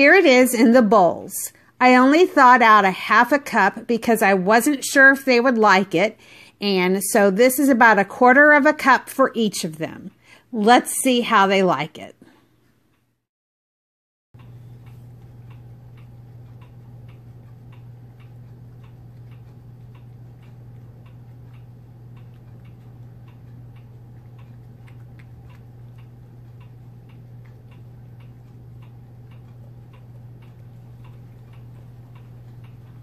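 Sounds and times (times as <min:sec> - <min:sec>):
cats chewing food: 0:14.4 - 0:33.0
low hum: 0:14.4 - 0:33.0.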